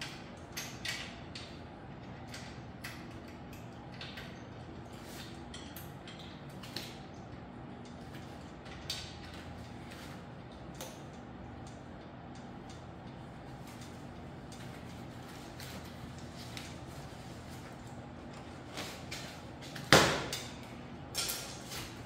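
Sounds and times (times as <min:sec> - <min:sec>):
clicks of bike parts: 0:00.0 - 0:04.4
steady low hum: 0:00.0 - 0:22.0.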